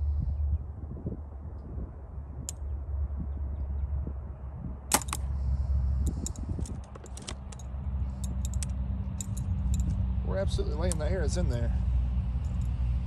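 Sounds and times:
low wind rumble: 0.0s - 13.0s.

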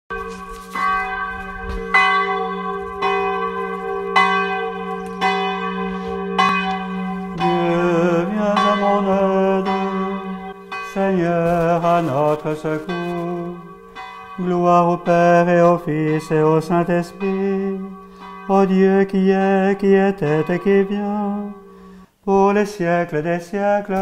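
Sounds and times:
church bell tolling: 0.1s - 22.1s
person singing: 7.2s - 13.7s, 14.4s - 21.6s, 22.2s - 24.0s.

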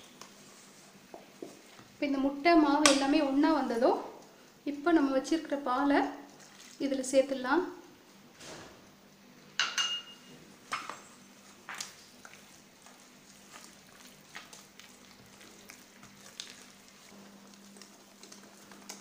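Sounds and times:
spoon stirring batter in steel bowl: 10.9s - 19.0s.

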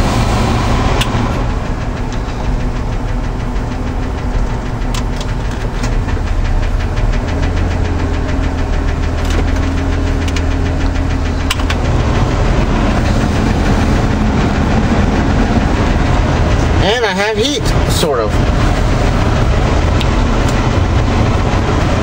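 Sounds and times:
car engine idling: 0.0s - 22.0s
heater blower fan: 0.0s - 22.0s
dashboard knobs clicking: 4.2s - 14.6s, 19.7s - 21.6s.

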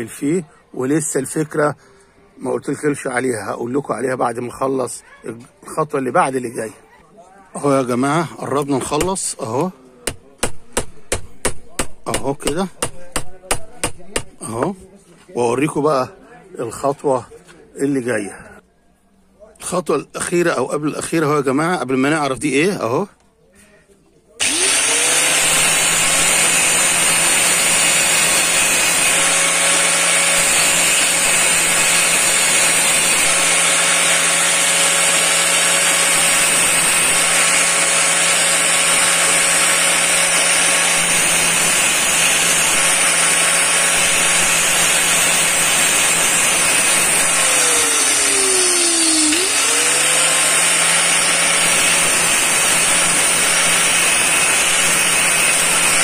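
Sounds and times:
angle grinder grinding steel: 24.4s - 56.0s.

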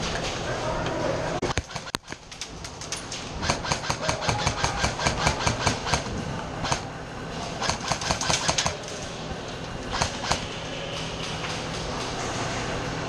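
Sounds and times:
steady low hum: 0.0s - 13.0s
airsoft guns firing: 1.5s - 2.2s, 3.4s - 6.9s, 7.6s - 8.9s, 9.9s - 11.1s.

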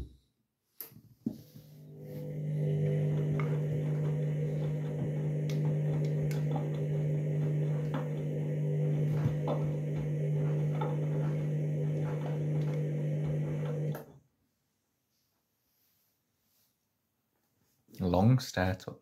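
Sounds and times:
washing machine humming: 1.8s - 14.2s.

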